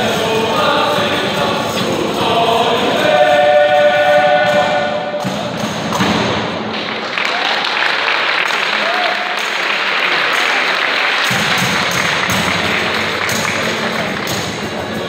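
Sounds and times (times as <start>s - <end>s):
male choir singing: 0.0s - 5.4s
guitars: 11.3s - 15.0s.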